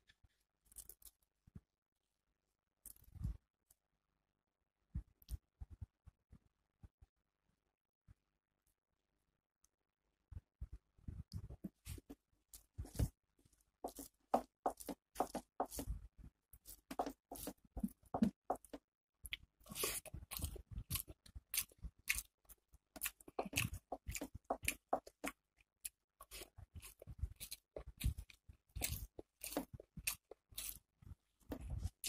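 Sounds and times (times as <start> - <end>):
fingers squishing rice: 11.2 - 32.0
wet chewing and mouth smacks: 16.7 - 30.8.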